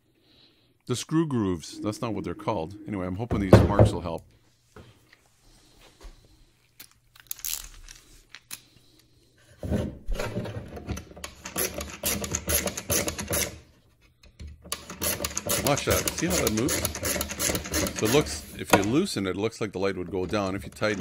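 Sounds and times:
screwdriver scraping and clicking: 0:11.2 - 0:13.6, 0:14.3 - 0:19.0.

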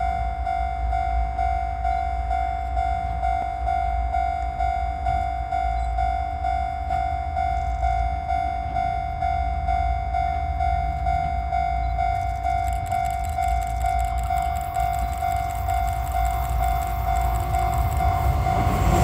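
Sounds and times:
level crossing bell ringing: 0:00.0 - 0:19.0
rhythmic high ticking of train: 0:00.0 - 0:19.0
low rumble: 0:09.0 - 0:19.0.

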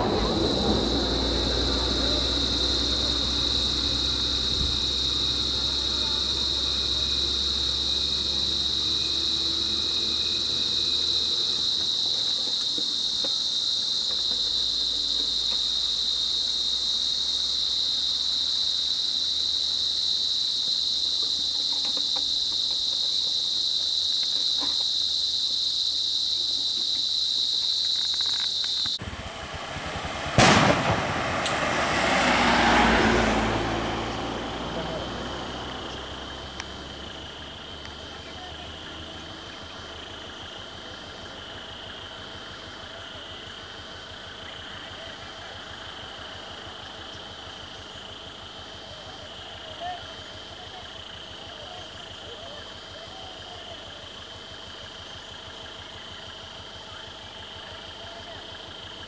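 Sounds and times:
high-pitched insect drone: 0:00.0 - 0:29.0, 0:32.0 - 0:59.0
sharp loud bang: 0:29.0 - 0:32.0.

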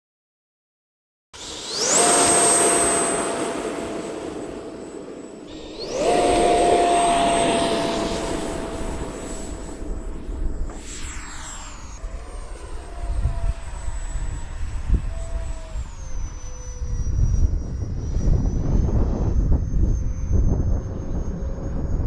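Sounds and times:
electric ducted fan whine: 0:01.4 - 0:21.9.

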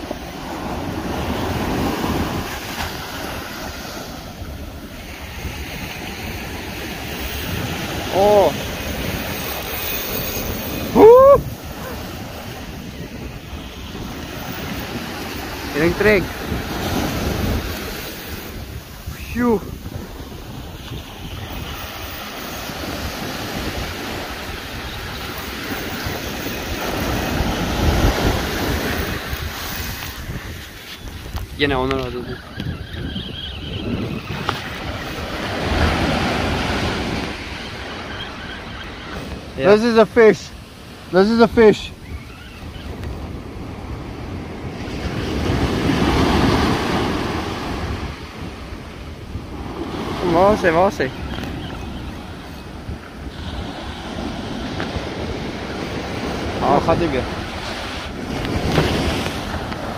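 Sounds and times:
surf washing up beach: 0:00.0 - 0:59.9
wind buffeting microphone: 0:00.0 - 0:59.9
short rising shout: 0:10.9 - 0:12.0.

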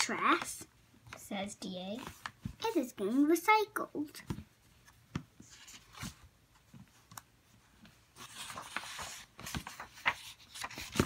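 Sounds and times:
book page turning: 0:04.3 - 0:11.0.

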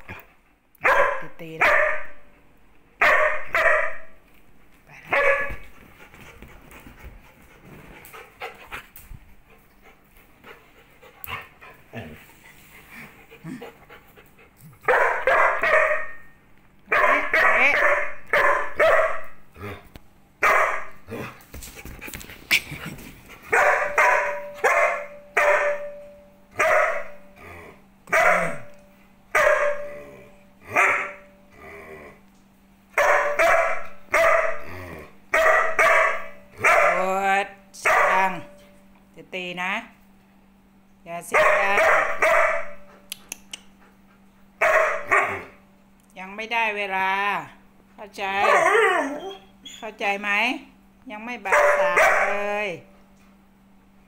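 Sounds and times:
dog barking: 0:00.8 - 0:02.2, 0:03.0 - 0:04.2, 0:05.1 - 0:05.6, 0:14.9 - 0:16.3, 0:16.9 - 0:19.4, 0:20.4 - 0:21.0, 0:23.5 - 0:26.0, 0:26.6 - 0:27.2, 0:28.1 - 0:28.7, 0:29.3 - 0:29.9, 0:30.7 - 0:31.2, 0:33.0 - 0:34.6, 0:35.3 - 0:37.1, 0:37.8 - 0:38.5, 0:41.3 - 0:42.8, 0:44.6 - 0:45.6, 0:48.4 - 0:49.2, 0:51.5 - 0:52.5.

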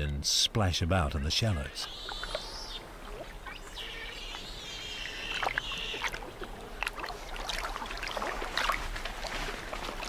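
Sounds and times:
water splashing: 0:02.0 - 0:10.0.

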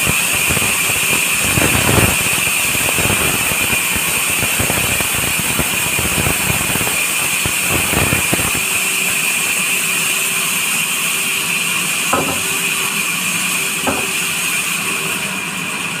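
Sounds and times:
band saw whining: 0:06.6 - 0:15.6
wooden knocks: 0:12.2 - 0:12.8, 0:13.8 - 0:14.3
saw cutting wood: 0:12.2 - 0:14.8.

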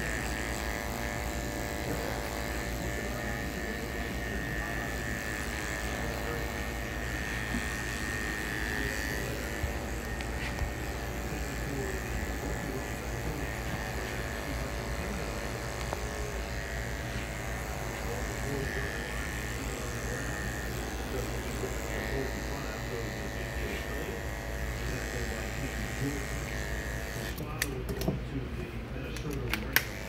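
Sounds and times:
electric hair clipper humming: 0:00.0 - 0:28.2, 0:29.2 - 0:30.0.

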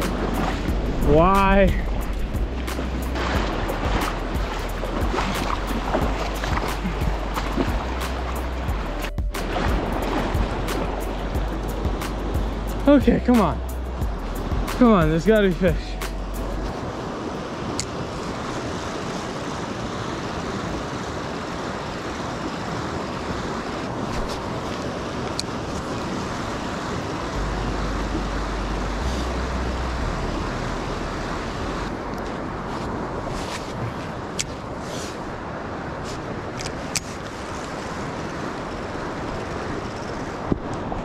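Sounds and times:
creek water rushing: 0:00.0 - 0:41.0.

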